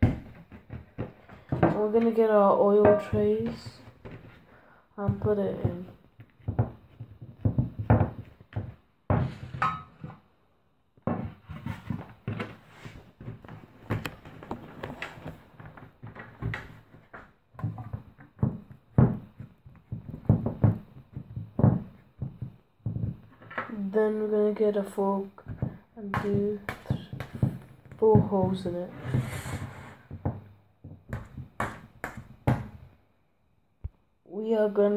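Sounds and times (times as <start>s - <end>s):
hands patting dough in metal tin: 13.2s - 23.5s, 25.4s - 28.7s.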